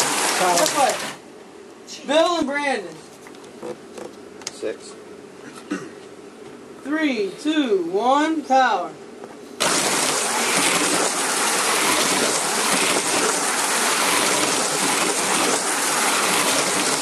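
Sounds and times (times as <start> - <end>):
slot cars buzzing hiss: 9.6 - 17.0.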